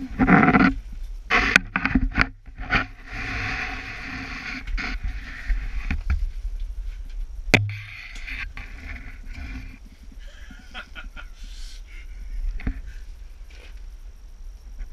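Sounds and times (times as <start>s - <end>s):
sharp thump: 7.5s - 8.1s
knocks: 7.6s - 7.9s.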